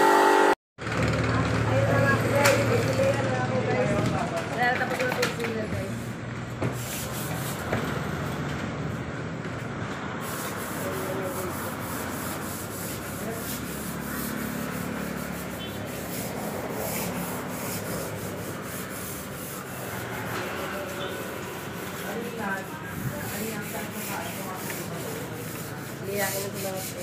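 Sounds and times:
sandpaper scratching on wood: 0:06.8 - 0:07.7, 0:10.2 - 0:27.0.

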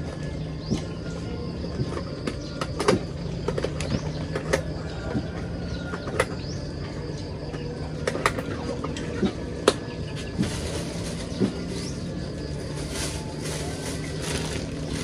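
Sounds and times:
plastic bags crinkling: 0:10.4 - 0:15.0.

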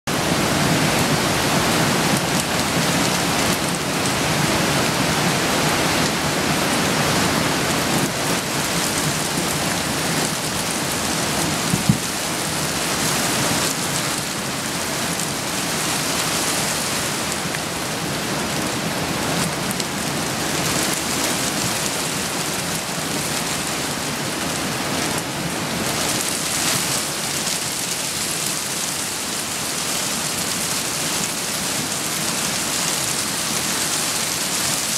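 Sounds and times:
rain falling: 0:00.1 - 0:34.9
stream rushing and churning: 0:00.1 - 0:34.9.

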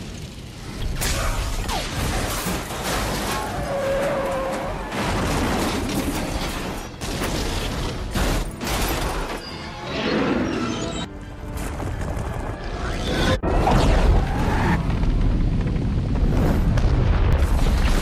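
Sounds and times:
music: 0:08.1 - 0:13.5.

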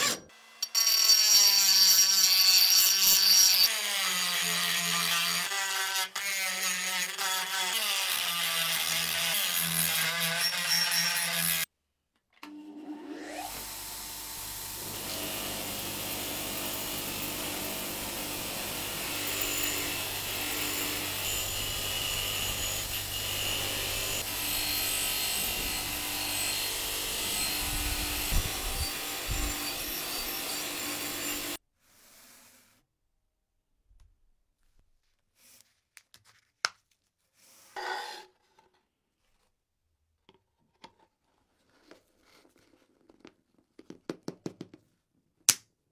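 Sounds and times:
electric power tool whining: 0:13.0 - 0:31.6.

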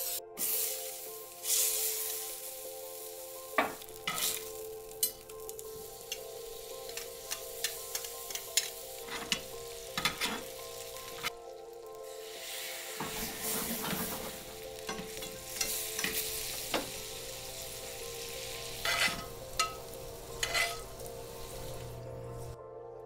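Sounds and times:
steaks sizzling in a skillet: 0:00.0 - 0:22.6
tongs clinking against a pan: 0:03.6 - 0:11.3, 0:14.8 - 0:17.2, 0:18.7 - 0:21.1.

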